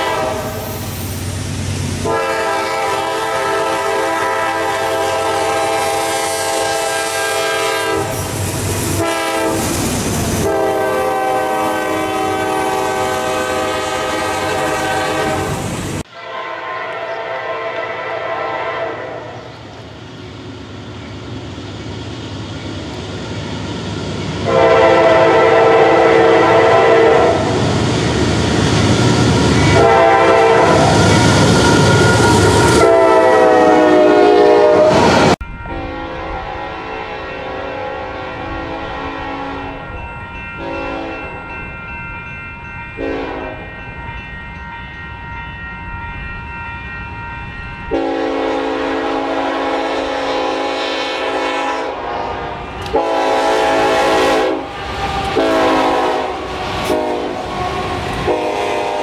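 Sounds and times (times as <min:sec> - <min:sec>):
locomotive air horn blasts: 0:00.0 - 0:00.8, 0:02.0 - 0:09.8, 0:10.4 - 0:19.5, 0:24.4 - 0:27.6, 0:29.5 - 0:39.9, 0:40.6 - 0:41.3, 0:43.0 - 0:43.6, 0:47.9 - 0:59.0
train rumble: 0:00.0 - 0:59.0.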